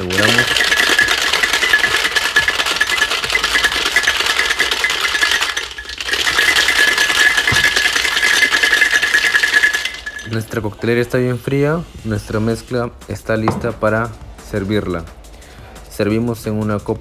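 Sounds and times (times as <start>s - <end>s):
ice rattling in cocktail shaker: 0.0s - 10.9s.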